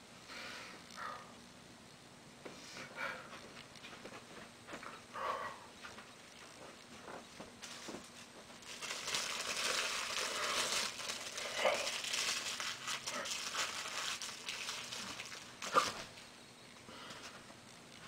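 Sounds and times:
crinkling and rustling: 5.8 - 16.3.

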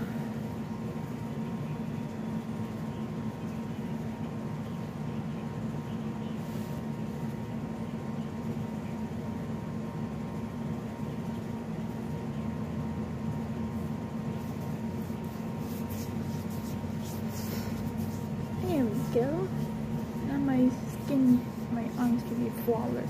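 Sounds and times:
low machine hum: 0.0 - 23.0
faint rubbing and handling: 6.3 - 7.4, 14.2 - 23.0.

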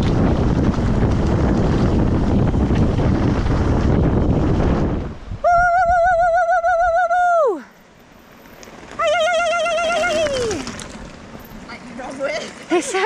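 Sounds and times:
wind noise on microphone: 0.0 - 7.5, 8.7 - 11.7.

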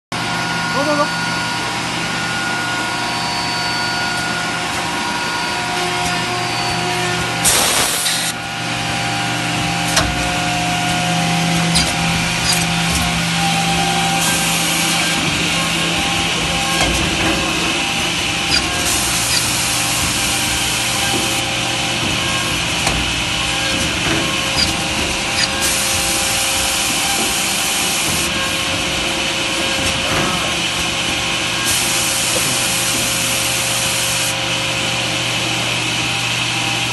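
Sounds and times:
machine motor hum: 4.0 - 36.9
high cutting hiss: 7.4 - 8.4, 14.1 - 15.2.

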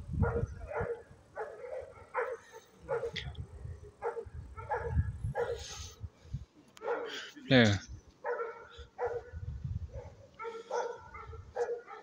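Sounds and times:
dog barking: 0.2 - 3.3, 4.0 - 5.8, 6.8 - 7.3, 8.2 - 12.0.

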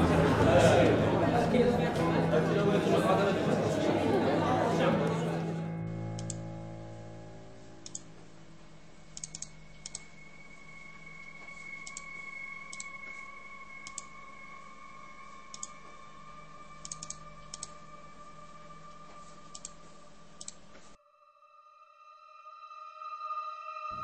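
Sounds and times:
computer mouse clicking: 6.2 - 6.4, 7.8 - 8.0, 9.2 - 10.1, 11.8 - 12.1, 13.8 - 14.1, 15.5 - 15.8, 16.8 - 17.8, 19.5 - 19.8, 20.4 - 20.9.

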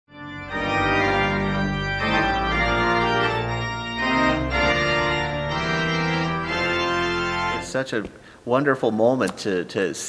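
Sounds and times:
pipe organ chords: 0.1 - 8.0.

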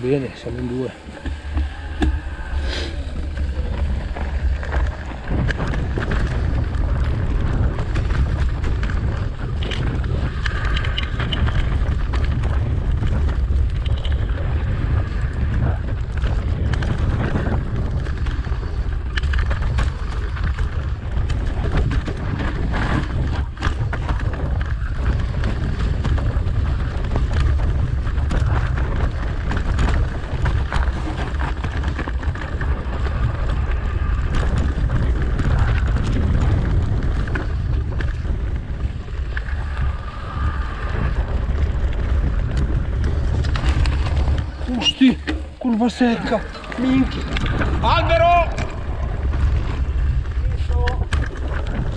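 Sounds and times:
bike clattering over bumps: 0.0 - 51.9
tyres rolling over leaves and dirt: 0.0 - 51.9
wind buffeting microphone: 0.0 - 51.9.

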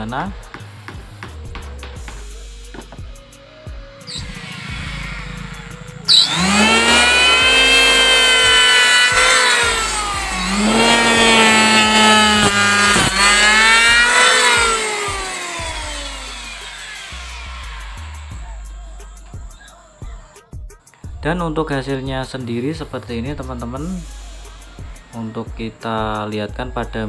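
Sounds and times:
electric hand planer cutting wood: 0.0 - 2.4, 4.1 - 20.3, 24.1 - 26.3.

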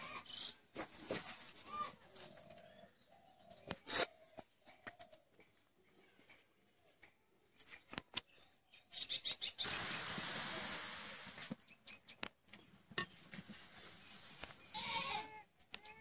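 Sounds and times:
loud steady hiss: 9.4 - 11.6
fire crackling: 9.6 - 11.6.

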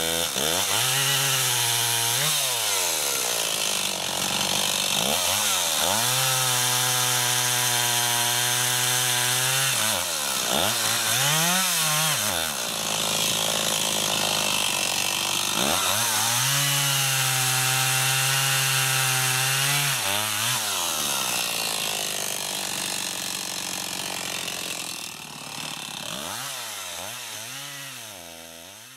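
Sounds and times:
chainsaw cutting through trunk: 0.0 - 28.9.

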